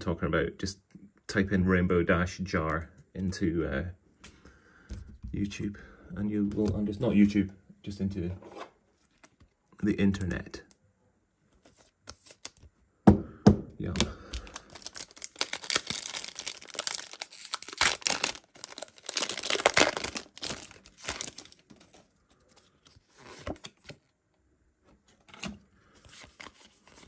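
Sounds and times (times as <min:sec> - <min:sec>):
foil wrapper tearing and crinkling: 0:13.9 - 0:22.1.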